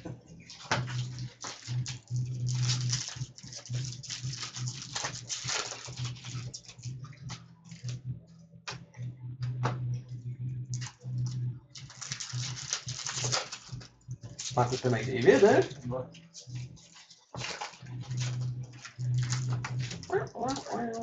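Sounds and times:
foil wrappers crinkling: 0.0 - 8.0, 11.7 - 21.0
low hum: 0.0 - 21.0
cards clicking and rustling: 0.4 - 8.0, 11.8 - 15.0, 16.2 - 21.0.

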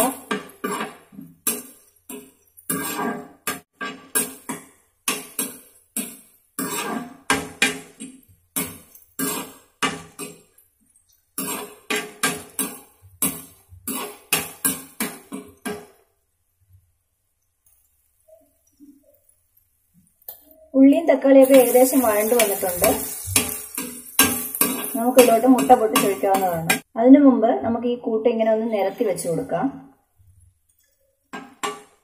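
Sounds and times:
spatula clanking in metal pan: 0.0 - 10.5, 11.4 - 15.9, 21.4 - 26.9.

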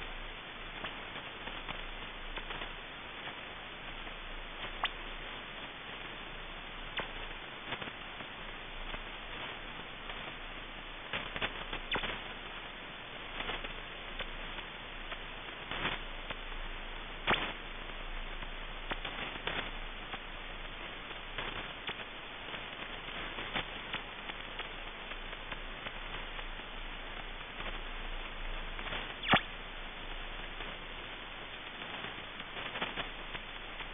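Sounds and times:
faint low hum: 0.0 - 33.9
radio band noise hiss: 0.0 - 33.9
sharp clicks and crackles: 0.8 - 5.7, 6.9 - 10.3, 11.1 - 12.3, 13.3 - 16.5, 17.2 - 33.9.

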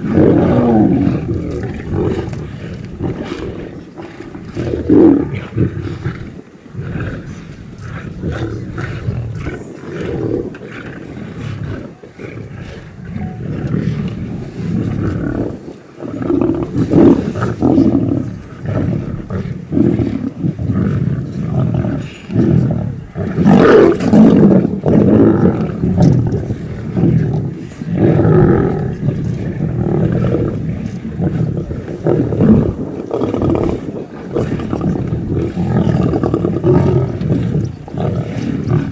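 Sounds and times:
lions growling: 0.0 - 38.9.

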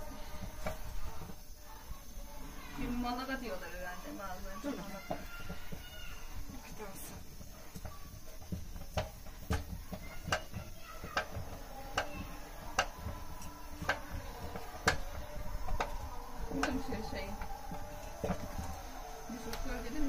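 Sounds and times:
wooden stick knocking metal pot: 5.0 - 18.8.

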